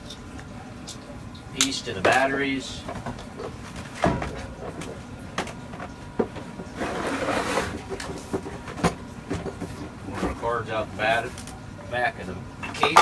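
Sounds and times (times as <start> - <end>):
scraping rustle: 6.7 - 8.6.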